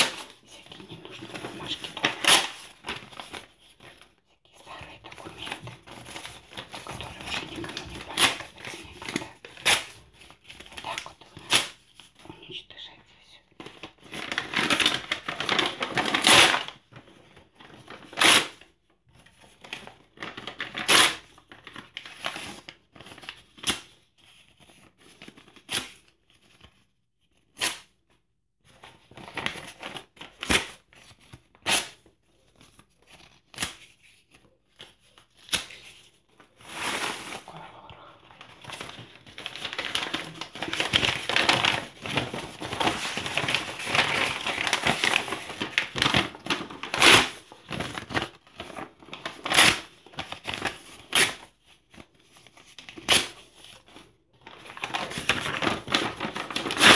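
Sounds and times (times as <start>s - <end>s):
paper rustling and crinkling: 0.0s - 12.3s, 13.6s - 27.8s, 28.6s - 56.9s
paper tearing: 1.2s - 3.4s, 14.2s - 16.7s, 20.6s - 21.3s, 38.7s - 51.4s, 54.7s - 56.9s.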